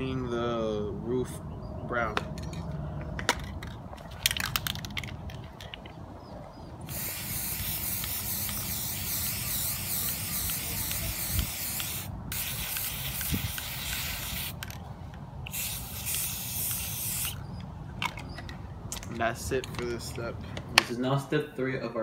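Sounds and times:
aerosol spray can hissing: 6.9 - 14.6, 15.5 - 17.4.

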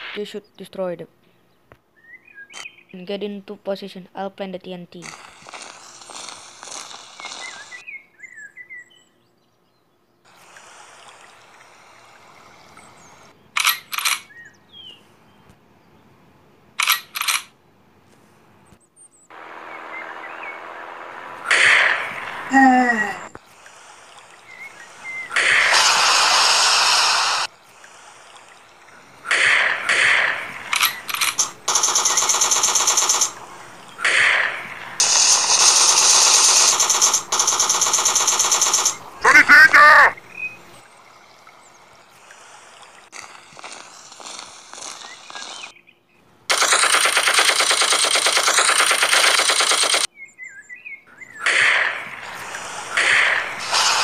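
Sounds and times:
loud noise: 19.3 - 23.3, 24.8 - 27.5, 29.3 - 40.2, 51.4 - 54.0
gunshots: 21.2 - 22.7, 25.3 - 27.5, 29.3 - 40.0, 46.5 - 50.1, 51.4 - 54.0
machine-gun burst: 25.3 - 27.5, 29.3 - 39.6, 46.5 - 50.1, 51.5 - 54.0.

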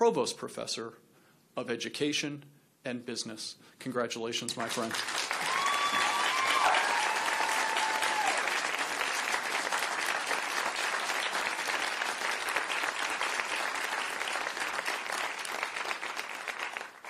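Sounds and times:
audience applauding: 4.6 - 17.0.

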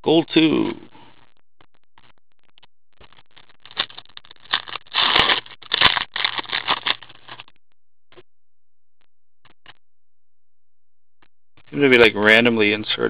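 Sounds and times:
plastic wrapper tearing and crinkling: 3.3 - 7.5.

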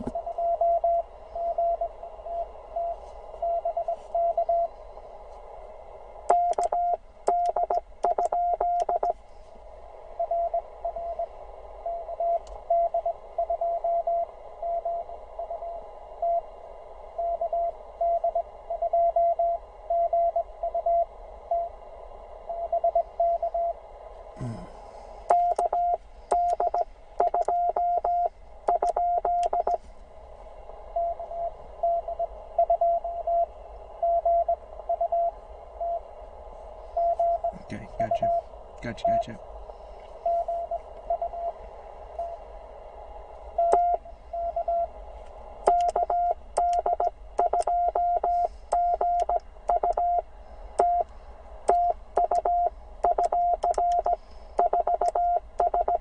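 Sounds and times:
faint morse code tones: 0.0 - 4.8, 6.3 - 9.2, 10.2 - 16.5, 17.2 - 21.8, 22.5 - 23.8, 25.3 - 29.8, 30.9 - 36.1, 36.9 - 39.4, 40.2 - 41.6, 43.5 - 45.0, 45.6 - 51.1, 51.7 - 56.0
radio band hiss: 36.5 - 44.3.

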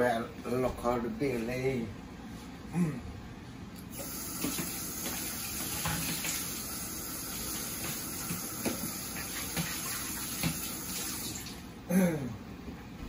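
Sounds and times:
water running from tap: 3.9 - 11.6.

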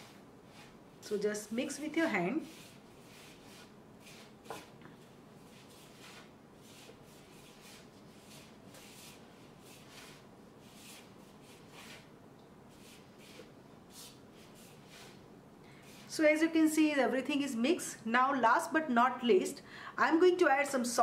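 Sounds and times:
hands rubbing flour mixture: 0.0 - 12.1, 12.7 - 15.2.

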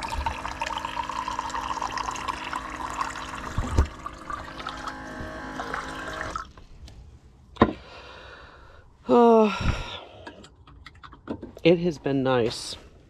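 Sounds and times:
water dispenser pump running: 0.0 - 6.5
water pouring into a glass: 0.0 - 6.5.

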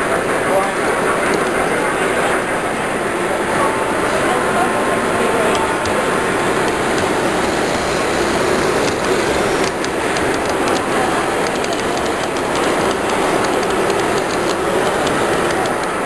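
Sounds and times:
model train wheels clicking over rail joints: 5.3 - 16.0.

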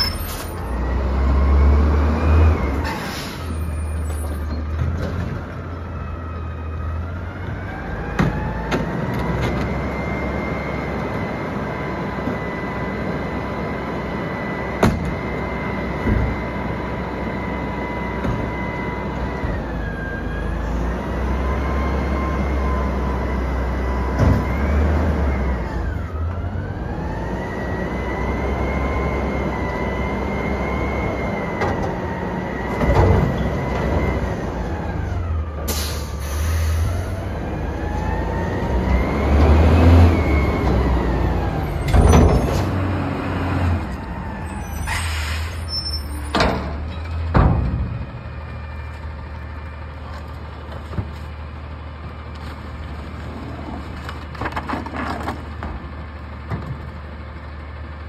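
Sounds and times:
truck engine revving with whine: 0.0 - 4.7, 5.7 - 49.0.

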